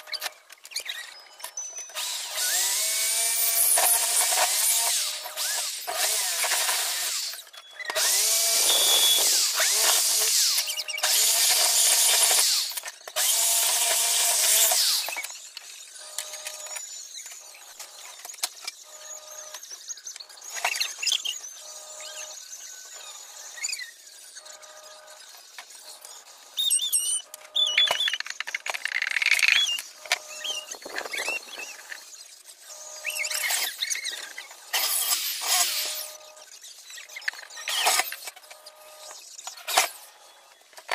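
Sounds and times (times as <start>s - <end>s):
electric drill on metal: 1.7s - 27.9s, 29.0s - 40.9s
clicks and knocks of metal parts: 27.3s - 32.0s.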